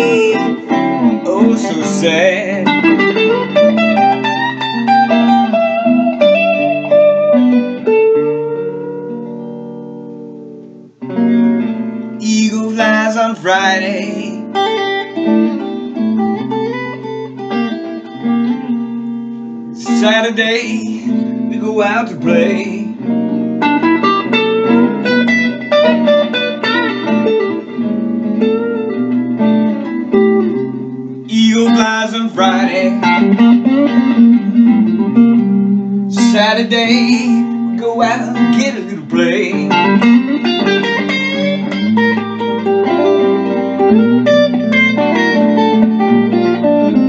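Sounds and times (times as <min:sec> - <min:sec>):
person singing: 0:00.0 - 0:03.8, 0:12.2 - 0:14.6, 0:19.8 - 0:23.0, 0:31.2 - 0:34.8, 0:36.1 - 0:41.2
electric guitar blues lead: 0:00.0 - 0:47.0.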